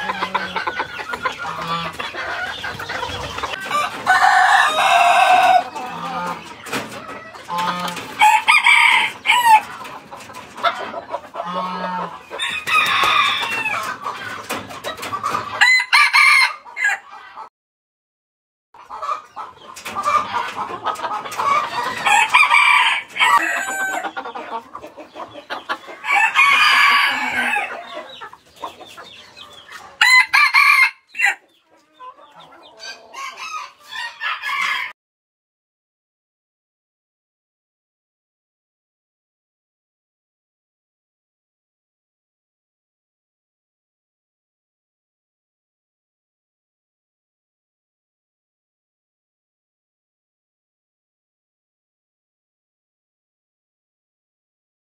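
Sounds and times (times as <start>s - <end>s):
roosters crowing: 0.0s - 6.5s, 7.2s - 9.8s, 11.4s - 14.0s, 15.6s - 17.1s, 21.3s - 24.2s, 25.7s - 28.2s, 30.0s - 31.4s, 32.7s - 35.0s.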